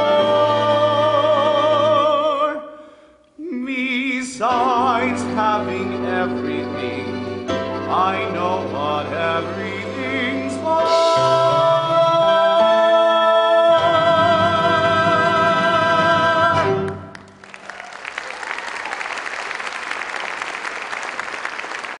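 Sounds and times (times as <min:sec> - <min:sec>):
instrumental accompaniment: 0:04.5 - 0:17.4
audience applauding: 0:16.8 - 0:22.0.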